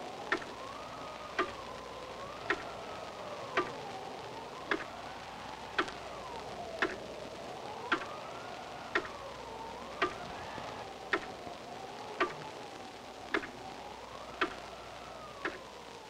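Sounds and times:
clock-like ticking: 0:00.2 - 0:00.7, 0:01.4 - 0:01.6, 0:02.5 - 0:02.7, 0:03.5 - 0:03.8, 0:04.7 - 0:04.9, 0:05.8 - 0:06.0, 0:06.8 - 0:07.0, 0:07.9 - 0:08.2, 0:08.9 - 0:09.2, 0:10.0 - 0:10.2, 0:11.1 - 0:11.4, 0:12.2 - 0:12.6, 0:13.3 - 0:13.6, 0:14.4 - 0:14.7, 0:15.4 - 0:15.7.

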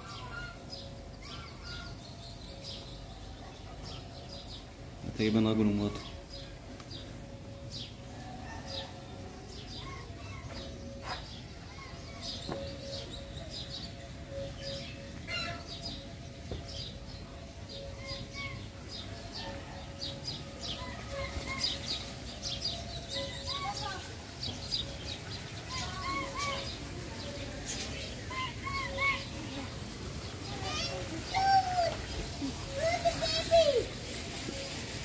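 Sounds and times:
small birds chirping: 0:09.6 - 0:35.0.

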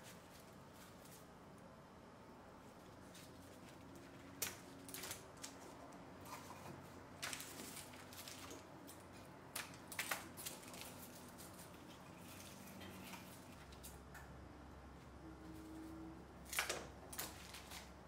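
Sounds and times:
paper rustling: 0:02.8 - 0:14.0.

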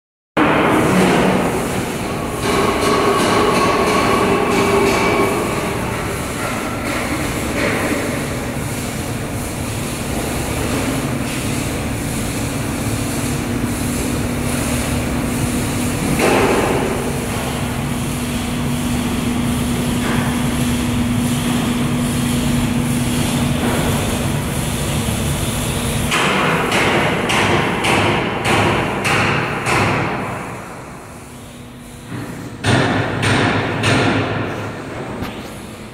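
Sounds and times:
steady hum: 0:00.4 - 0:35.9
sharp knocks: 0:32.2 - 0:34.5.

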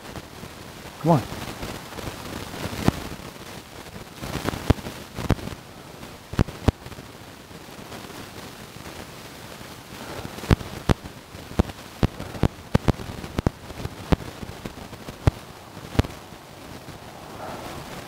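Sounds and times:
faint steady hiss: 0:00.0 - 0:18.0
sharp clicks or pops: 0:01.1 - 0:07.0, 0:10.0 - 0:17.0.

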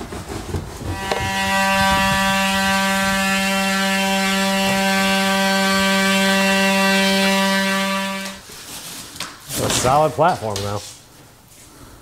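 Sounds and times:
multi-tool buzzing into drywall: 0:00.9 - 0:08.4.

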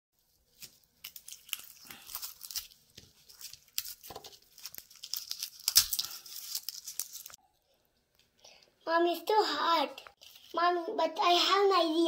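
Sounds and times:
garlic skins crackling and tearing: 0:00.4 - 0:07.4.

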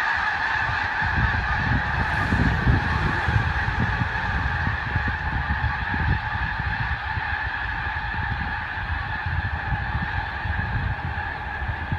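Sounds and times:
geese honking: 0:00.0 - 0:11.9
low rumble: 0:01.0 - 0:07.4.

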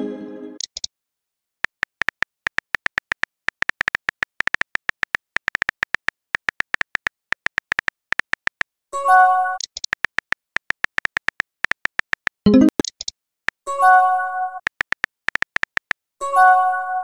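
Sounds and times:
keyboard key clicks: 0:01.6 - 0:08.8, 0:09.6 - 0:13.1, 0:14.6 - 0:16.1.

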